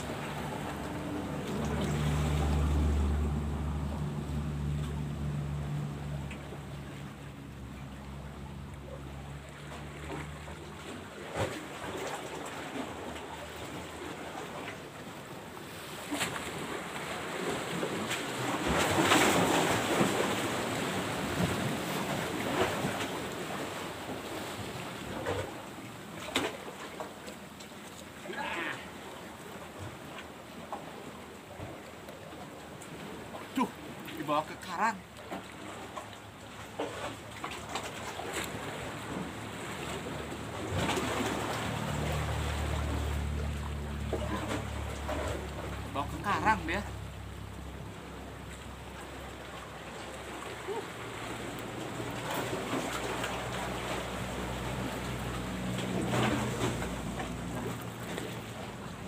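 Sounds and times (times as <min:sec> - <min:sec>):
waves washing against rocky shore: 0:00.0 - 0:05.7, 0:10.7 - 0:27.2, 0:28.1 - 0:47.3
low engine hum: 0:00.0 - 0:15.6, 0:16.4 - 0:59.0
surf: 0:00.0 - 0:59.0
wind: 0:00.0 - 0:59.0.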